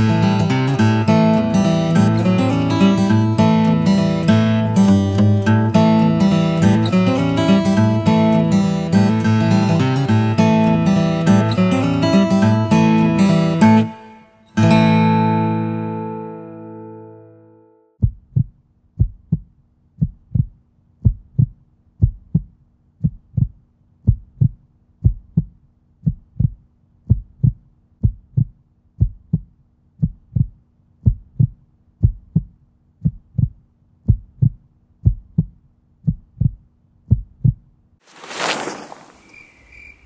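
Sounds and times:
heartbeat-like double thump: 0:18.0 - 0:37.6.

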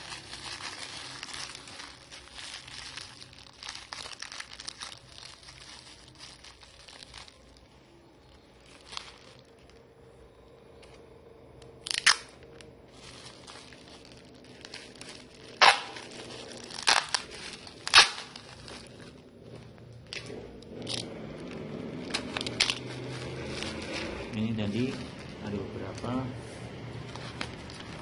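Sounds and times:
packing tape ripping off roll: 0:00.0 - 0:07.6, 0:11.8 - 0:19.1, 0:20.1 - 0:24.3
plastic crinkling: 0:00.0 - 0:11.0, 0:11.6 - 0:28.0.

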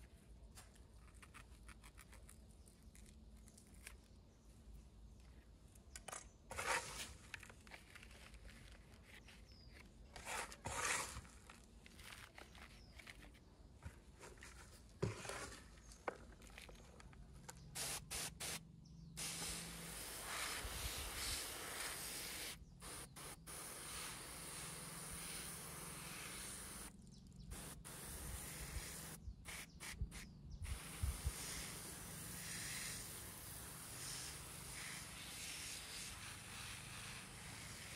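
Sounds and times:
short scrapes and rustles: 0:06.5 - 0:16.8
steady hiss: 0:17.8 - 0:18.6, 0:19.2 - 0:26.9, 0:27.5 - 0:37.9.

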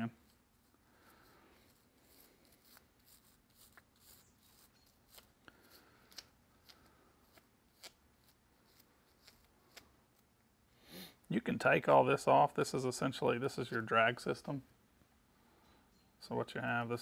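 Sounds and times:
toothbrush scrubbing metal: 0:00.2 - 0:09.8.

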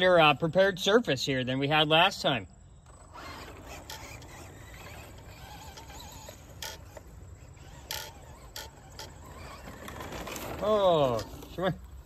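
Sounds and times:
toy car electric motor whining: 0:02.7 - 0:11.7.

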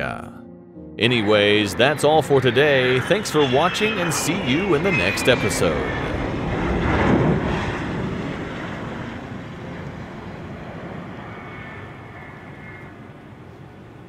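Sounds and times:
faint high whine: 0:01.0 - 0:06.6, 0:08.4 - 0:14.0
jet rushing noise: 0:01.0 - 0:13.3.

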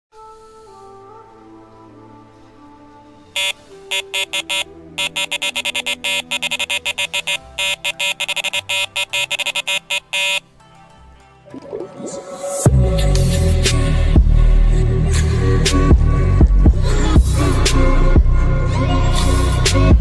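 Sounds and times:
soft background music: 0:00.2 - 0:20.0
electronic bite alarm beeping: 0:03.4 - 0:10.4.

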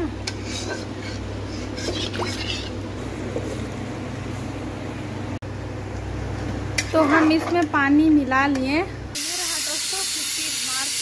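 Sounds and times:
steady low hum: 0:00.0 - 0:09.4
spatula scraping pan: 0:00.3 - 0:02.8
water sloshing in metal pan: 0:00.5 - 0:03.6.

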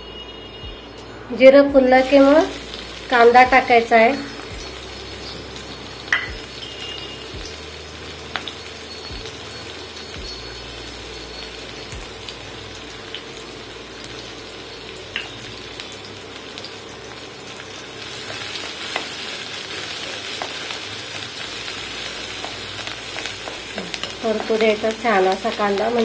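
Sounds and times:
onion sizzling in oil: 0:00.0 - 0:26.0.

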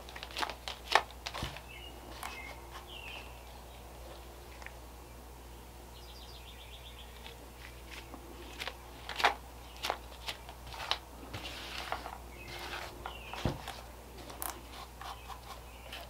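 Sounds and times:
soft rubbing: 0:10.2 - 0:16.0.

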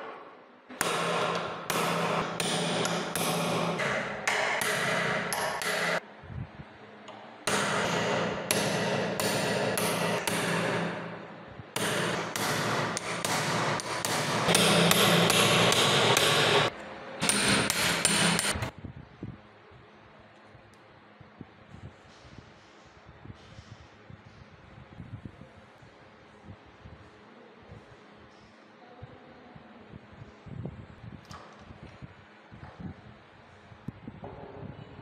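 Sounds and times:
hammer striking steel punch: 0:00.8 - 0:06.0, 0:07.4 - 0:18.7.

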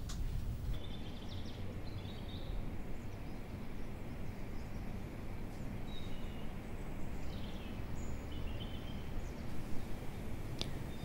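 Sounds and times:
faint bird chirps: 0:00.8 - 0:11.0
small click: 0:10.6 - 0:10.8.

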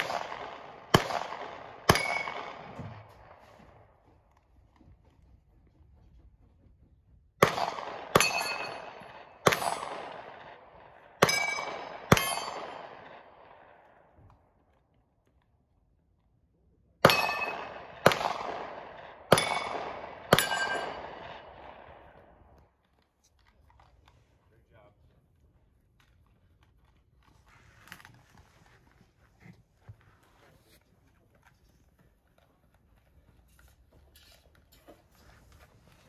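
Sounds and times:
bullets clanging on steel targets: 0:00.0 - 0:03.4, 0:07.4 - 0:10.6, 0:11.2 - 0:13.2, 0:17.0 - 0:21.7
rifle gunshots: 0:00.0 - 0:03.4, 0:07.4 - 0:13.8, 0:17.0 - 0:22.3.

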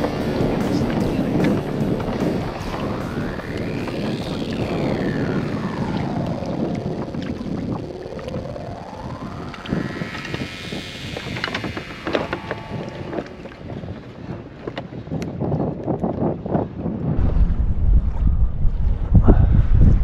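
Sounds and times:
hollow whoosh: 0:00.0 - 0:14.6
water noise: 0:00.0 - 0:19.3
wind buffeting microphone: 0:00.0 - 0:20.0.

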